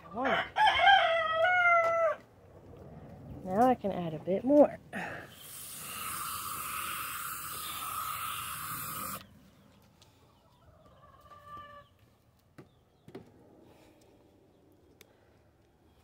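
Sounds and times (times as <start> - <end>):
hose nozzle spraying water on sand: 5.3 - 9.3
faint chicken clucks: 9.6 - 12.8.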